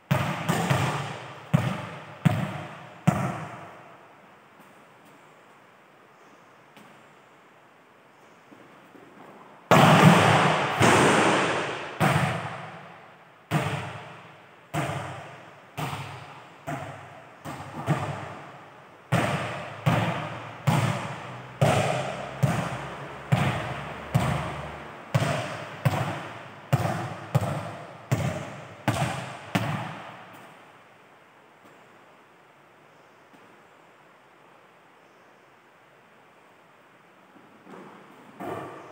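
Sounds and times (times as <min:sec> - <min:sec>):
volleyball impacts echoing in hall: 0:00.0 - 0:05.2, 0:08.5 - 0:30.8, 0:37.7 - 0:38.9.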